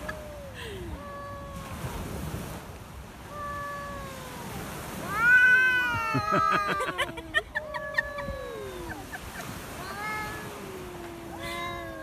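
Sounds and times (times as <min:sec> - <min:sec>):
cats yowling: 0:00.0 - 0:02.0, 0:03.2 - 0:12.0.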